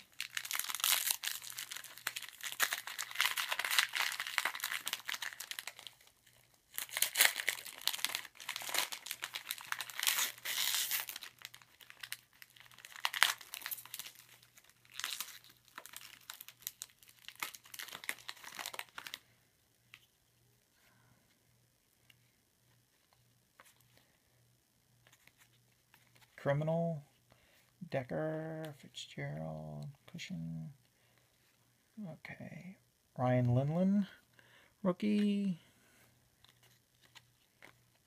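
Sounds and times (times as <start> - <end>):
wrapper tearing and crinkling: 0.0 - 6.1, 6.7 - 19.2.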